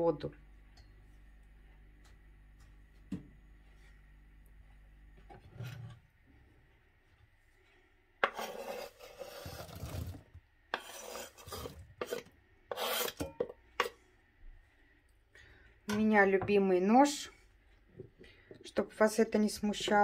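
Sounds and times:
knife cutting on wooden board: 8.2 - 13.9.

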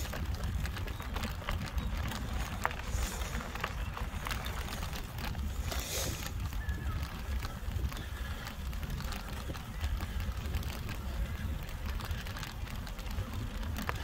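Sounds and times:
bike rattling and clicking: 0.0 - 14.0
wind rumble on microphone: 0.0 - 14.0
heavy breathing: 2.8 - 3.7, 5.5 - 6.4.

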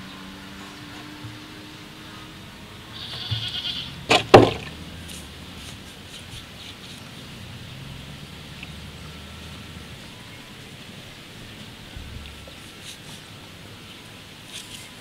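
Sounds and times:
wavering animal call: 2.0 - 4.1
sharp knocks: 4.1 - 5.2.

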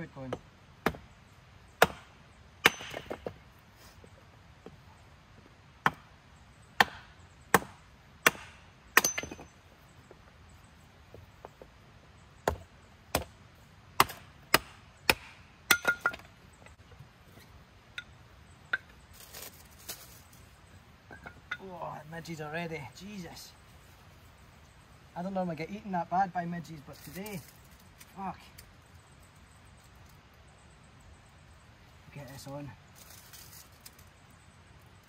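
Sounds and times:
firewood being chopped: 0.2 - 1.1, 1.8 - 3.4, 5.8 - 6.2, 6.8 - 9.6, 12.4 - 13.4, 14.0 - 16.3.

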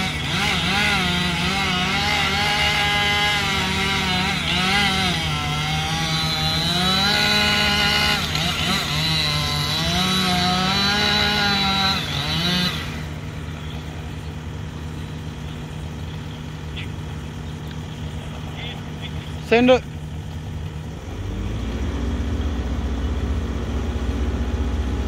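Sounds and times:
chainsaw cutting wood: 0.0 - 14.3.

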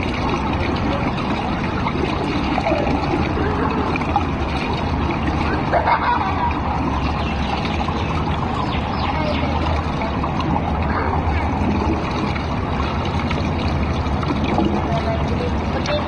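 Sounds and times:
pool water lapping: 0.0 - 16.0
faint voices: 14.4 - 16.0.

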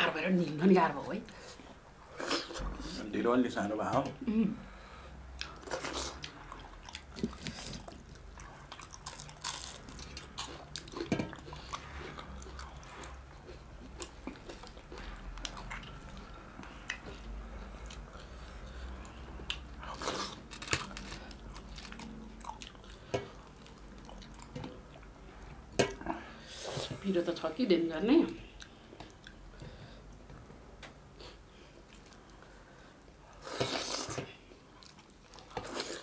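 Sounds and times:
people chewing food: 4.1 - 27.0, 28.2 - 36.0.

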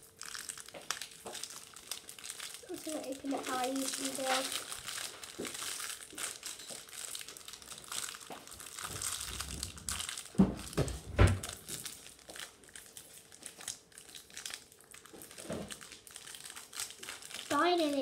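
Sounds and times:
plastic packaging crinkling: 0.0 - 18.0.

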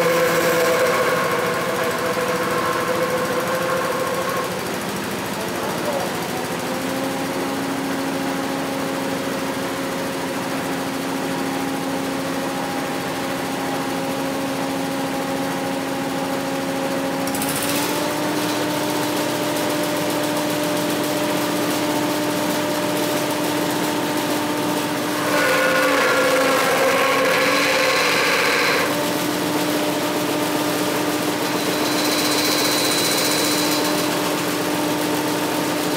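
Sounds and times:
machine humming: 0.0 - 7.3, 17.3 - 34.4
stalk pulled through machine: 25.0 - 29.0.

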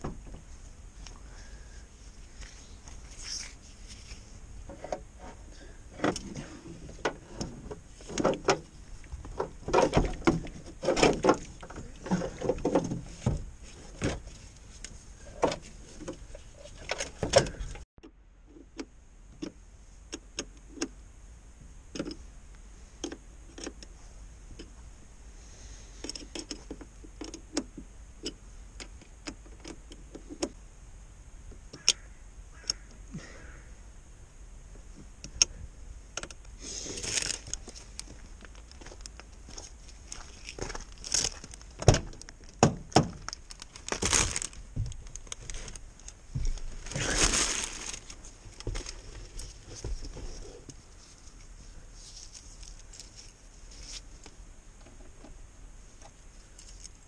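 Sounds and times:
hands handling plastic and metal parts: 36.2 - 55.2, 56.0 - 57.0.

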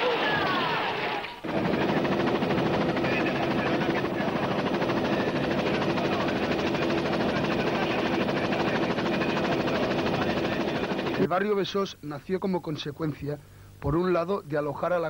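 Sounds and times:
helicopter engine drone: 1.4 - 11.3
helicopter rotor beat: 1.4 - 11.3.

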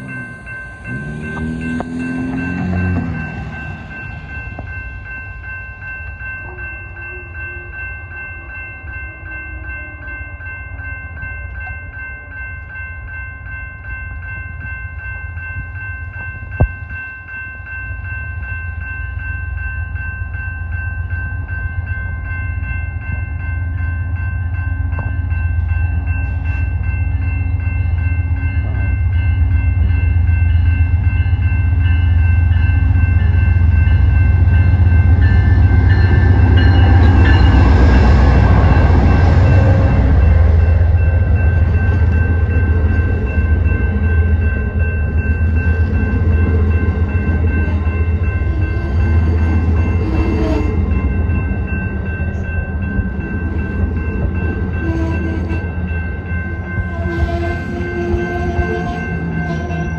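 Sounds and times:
diesel locomotive rumble: 0.0 - 8.5, 22.6 - 59.9
railroad crossing bell ringing: 0.0 - 59.9.

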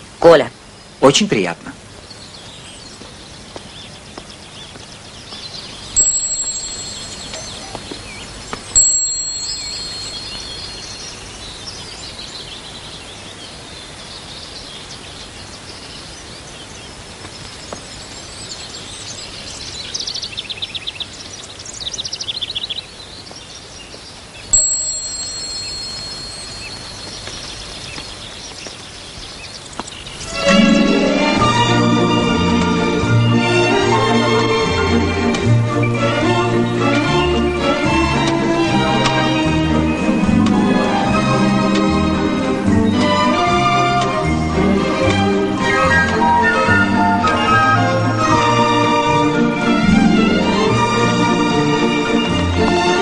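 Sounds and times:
birdsong: 0.0 - 53.0
bright chiming pings: 6.0 - 7.8, 8.8 - 11.0, 24.5 - 27.2.

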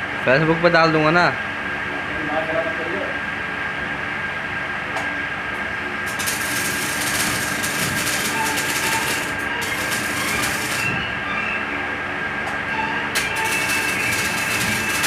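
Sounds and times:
arc welding crackling: 6.0 - 11.1, 13.1 - 15.0.

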